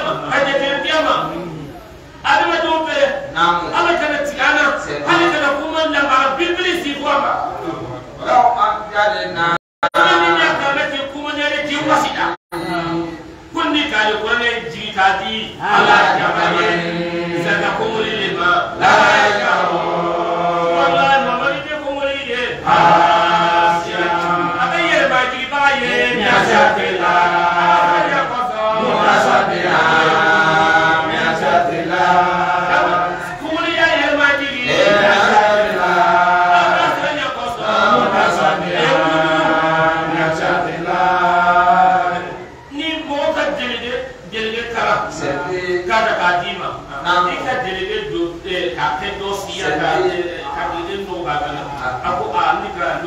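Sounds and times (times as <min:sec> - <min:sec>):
man chanting: 0:08.2 - 0:53.0.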